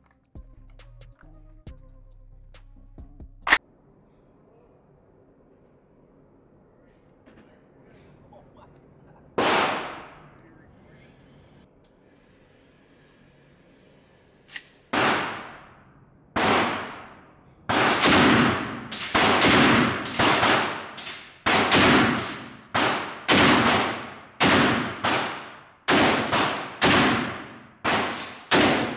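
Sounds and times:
indoor range echo: 3.5s - 28.9s
shotgun shots: 9.4s - 10.2s, 14.9s - 15.7s, 16.4s - 28.9s.

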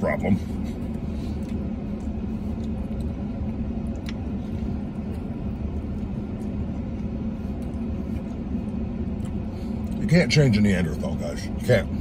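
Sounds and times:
vehicle engine humming: 0.0s - 12.0s
man chewing: 0.4s - 10.0s.

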